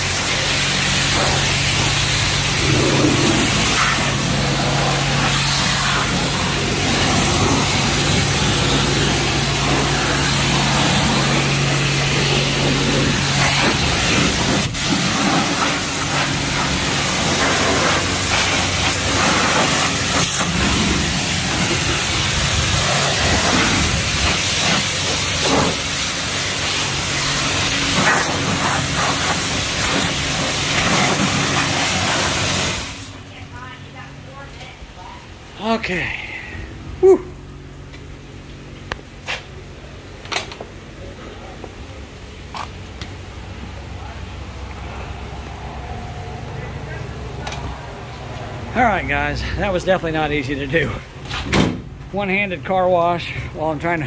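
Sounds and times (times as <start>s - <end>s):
low hum: 0.0s - 24.3s
pressure wand spraying water: 0.0s - 33.2s.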